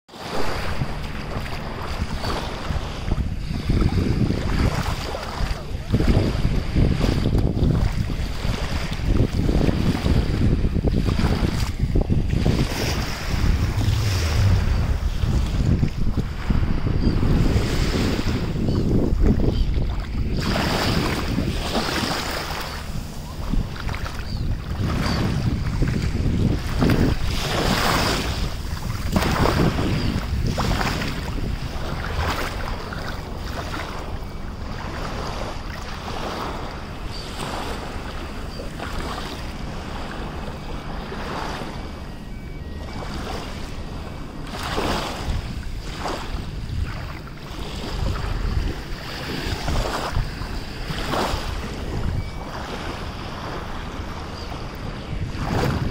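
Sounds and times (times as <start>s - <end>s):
small waves lapping: 0.1s - 55.9s
wind rumbling on microphone: 0.1s - 55.9s
feet wading through water: 0.2s - 16.8s.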